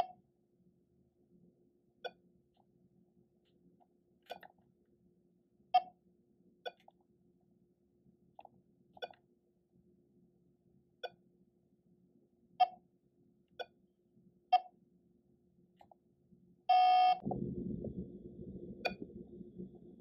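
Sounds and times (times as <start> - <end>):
longer electronic beep: 16.7 - 17.2
low rumbling noise: 17.2 - 20.0.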